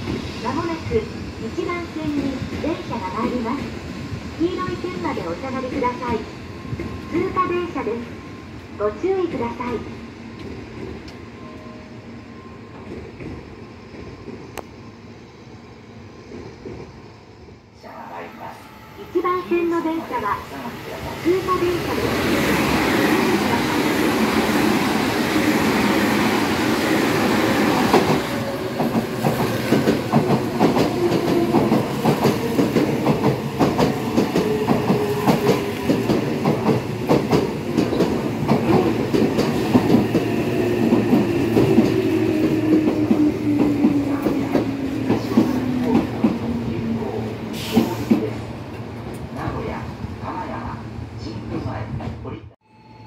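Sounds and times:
train rushing past: 16.0 - 52.2
train wheels clacking over joints: 27.8 - 46.4.

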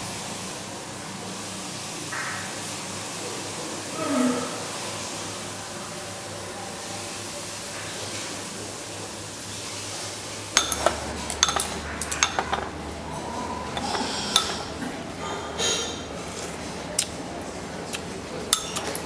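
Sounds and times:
faint voices: 3.2 - 9.2.

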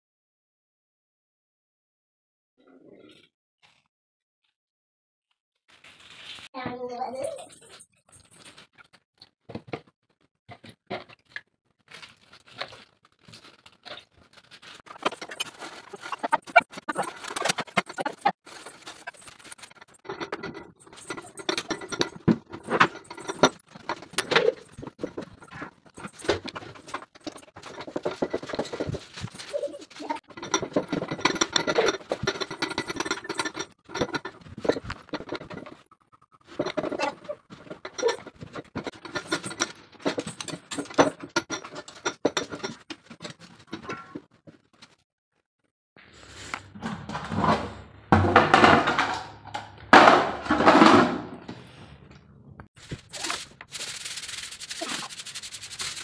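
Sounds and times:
metal burner parts clinking: 14.8 - 35.8, 36.5 - 44.0
cloth scrubbing a glass stove top: 52.8 - 56.0.

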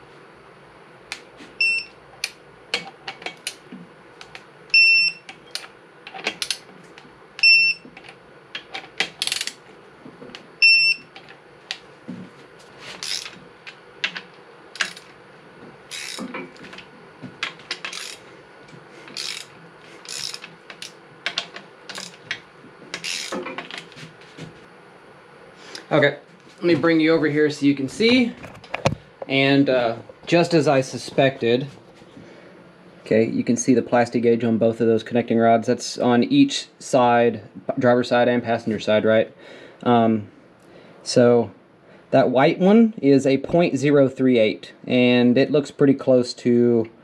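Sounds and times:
torque wrench beeping: 1.6 - 1.9, 4.7 - 5.6, 7.4 - 7.9, 10.6 - 11.1, 13.0 - 13.4, 15.9 - 16.3, 17.8 - 18.2, 19.1 - 20.9, 21.9 - 22.2, 23.0 - 23.4
wrench and socket clack: 5.5 - 6.6, 8.6 - 9.6, 13.0 - 13.4, 14.8 - 15.1, 15.9 - 16.4, 17.4 - 18.2, 19.1 - 22.4, 23.0 - 23.8
metal wrench clicks and clinks: 9.2 - 9.6, 13.0 - 13.4, 14.8 - 15.1, 15.9 - 16.3, 17.8 - 18.2, 19.1 - 22.2, 23.0 - 23.4.

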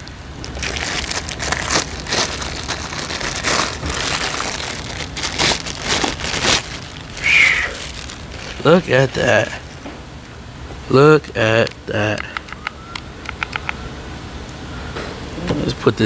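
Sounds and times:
packaging crinkling and tearing: 0.0 - 9.8.

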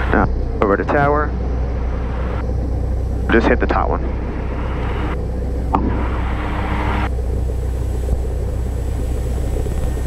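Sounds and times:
aircraft piston engine idling: 0.0 - 10.0
hiss: 7.6 - 10.0.

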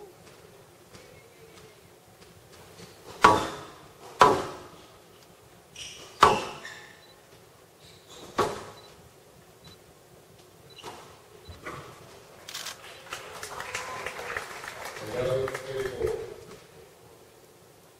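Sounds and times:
squash ball strikes: 3.2 - 4.7
shoes squeaking on court: 5.7 - 8.9.

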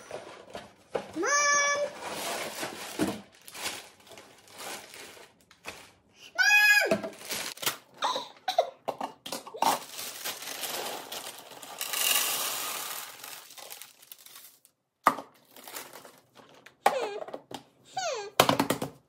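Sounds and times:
plastic bag crinkling: 2.0 - 6.1, 7.0 - 7.8, 9.6 - 14.8, 15.4 - 16.6
cereal pouring into glass jar: 9.8 - 14.7.

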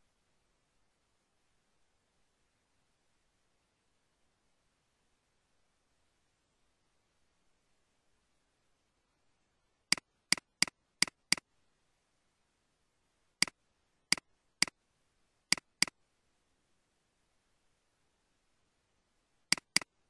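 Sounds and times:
computer mouse clicking: 9.9 - 11.4, 13.4 - 14.7, 15.5 - 15.9, 19.5 - 19.9.

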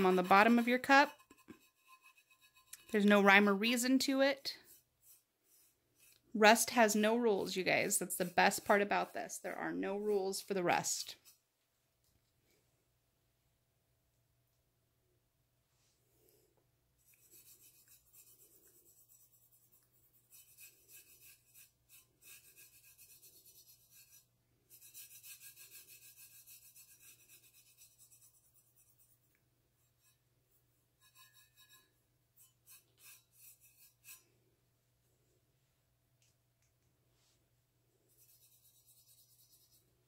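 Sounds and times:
fingertip rubbing paint on metal: 0.0 - 6.8, 17.0 - 30.2, 31.0 - 34.3, 38.1 - 40.0.

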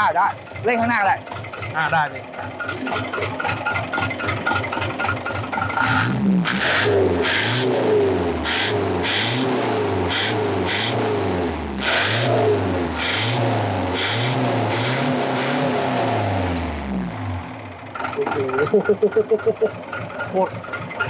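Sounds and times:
engine revving in quick blips: 2.6 - 17.4.

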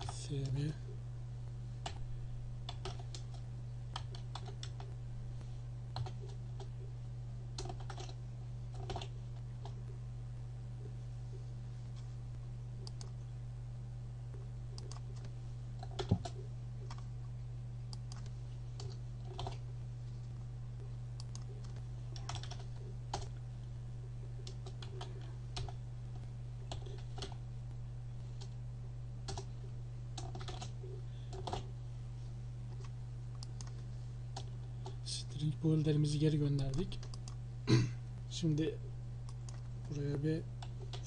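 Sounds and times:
steady low hum: 0.0 - 41.0
keyboard typing: 2.6 - 5.0, 5.9 - 6.8, 7.6 - 9.8, 12.8 - 13.2, 14.7 - 17.1, 17.9 - 19.6, 21.2 - 23.4, 24.4 - 27.4, 29.3 - 29.5, 30.2 - 31.7, 36.5 - 37.4.

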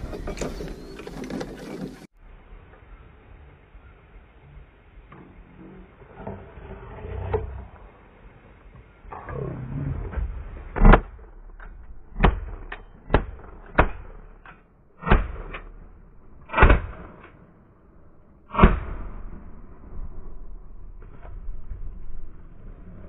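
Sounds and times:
shotgun shots: 16.4 - 17.2.

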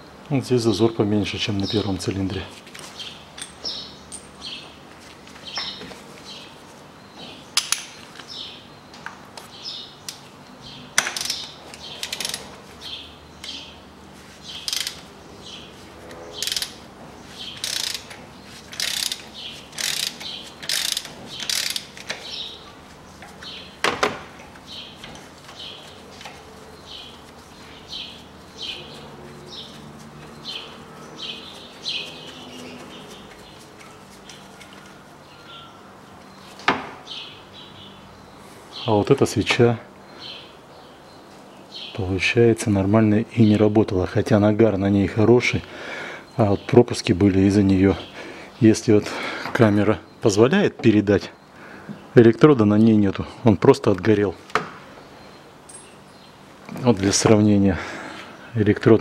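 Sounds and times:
ratchet wrench clicking: 11.0 - 12.5, 14.6 - 15.0, 16.4 - 16.8, 17.6 - 22.2.

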